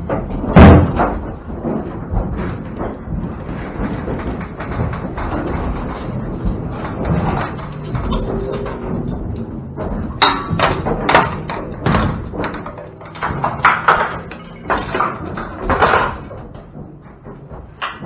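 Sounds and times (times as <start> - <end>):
steel chain clanking: 6.8 - 16.9.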